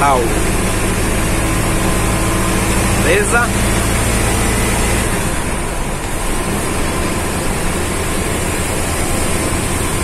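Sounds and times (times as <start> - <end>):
bus engine drone: 0.0 - 10.0
tyre noise on wet road: 0.0 - 10.0.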